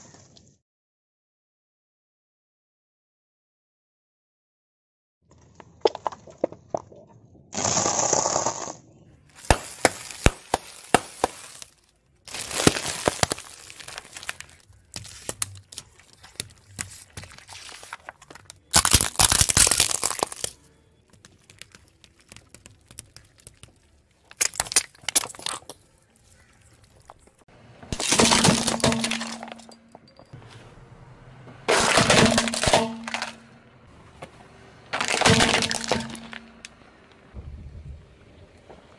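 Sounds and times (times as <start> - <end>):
tyre crushing plastic and glass: 9.4 - 30.2, 31.7 - 33.5, 34.9 - 36.7.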